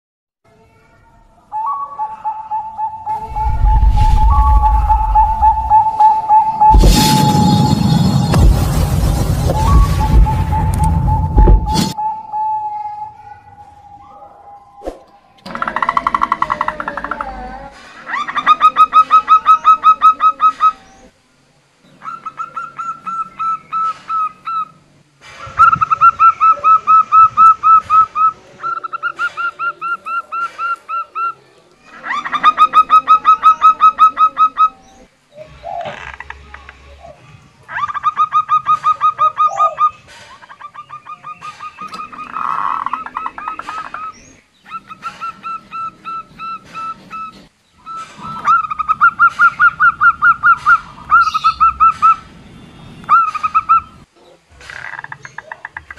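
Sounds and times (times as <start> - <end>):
dove calling in staccato bursts: 37.7 - 52.4, 53.1 - 54.1.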